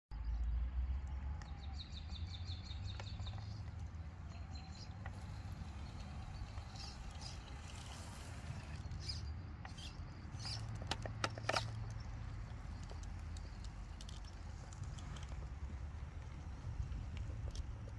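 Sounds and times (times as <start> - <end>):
tyres clicking on stone: 9.0 - 17.9.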